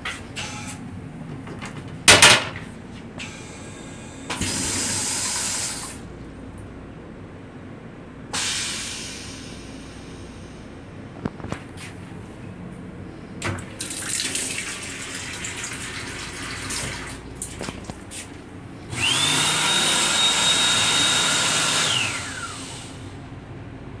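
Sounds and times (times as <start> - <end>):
hand dryer blowing: 3.5 - 6.0, 8.4 - 10.0, 14.1 - 17.2, 18.9 - 23.2
water running from faucet: 13.8 - 17.2.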